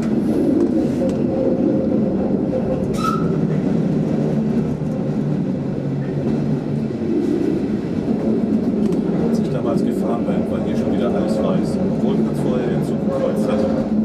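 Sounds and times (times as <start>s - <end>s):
train rumbling on rails: 0.0s - 14.0s
high squeal: 2.9s - 3.4s.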